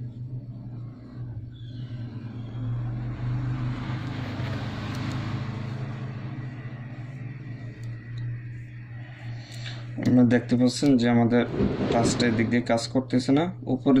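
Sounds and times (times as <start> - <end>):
steady low hum: 0.0 - 14.0
motor vehicle passing: 1.8 - 9.0, 11.3 - 12.8.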